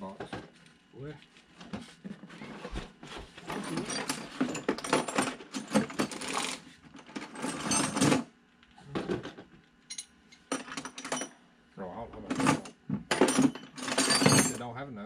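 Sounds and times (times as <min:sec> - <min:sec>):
metal bolts clinking and rattling: 0:09.9 - 0:11.3, 0:12.3 - 0:14.6.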